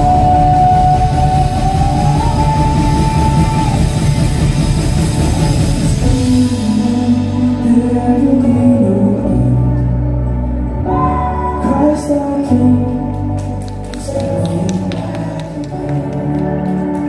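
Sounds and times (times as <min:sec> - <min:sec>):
drums: 0:00.0 - 0:09.8
live worship band playing: 0:00.0 - 0:17.0.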